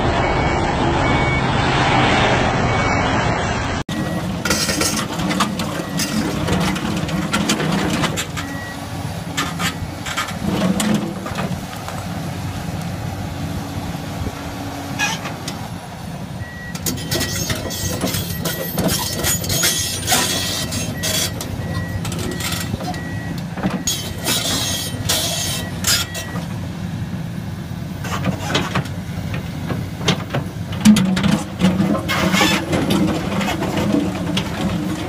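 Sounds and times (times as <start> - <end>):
excavator running under load: 0.0 - 35.0
beeping alarm: 0.2 - 1.6, 2.6 - 3.2.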